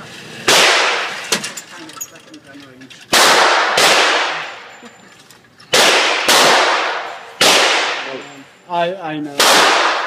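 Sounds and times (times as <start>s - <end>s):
gunshots echoing indoors: 0.5s - 1.2s, 3.1s - 4.7s, 5.7s - 8.2s, 9.4s - 10.0s.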